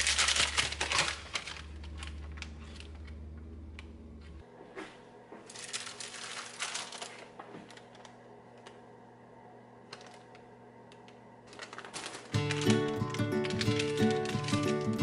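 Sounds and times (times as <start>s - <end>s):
parchment paper crackling: 0.0s - 3.4s, 5.5s - 8.1s, 11.5s - 15.0s.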